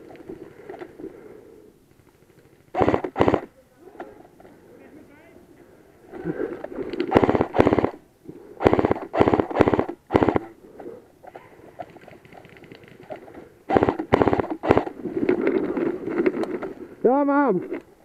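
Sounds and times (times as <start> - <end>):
airsoft gun firing bursts: 2.7 - 3.5, 7.1 - 8.0, 8.6 - 10.5, 13.7 - 15.0.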